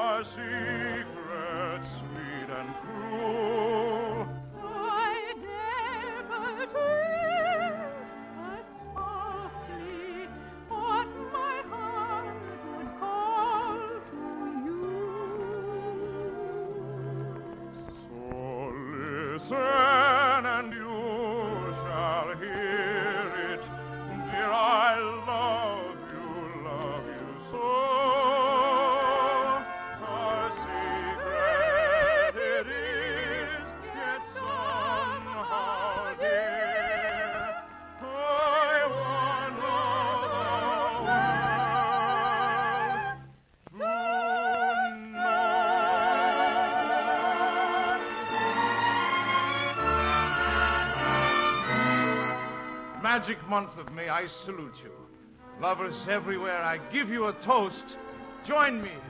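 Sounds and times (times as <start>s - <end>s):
orchestral accompaniment: 0.0s - 43.4s, 44.4s - 59.0s
operetta singing with vibrato: 0.0s - 59.0s.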